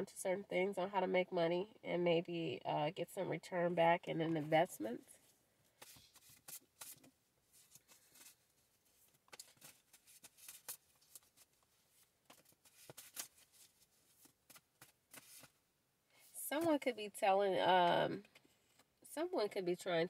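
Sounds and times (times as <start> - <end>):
cards being shuffled: 5.8 - 15.6.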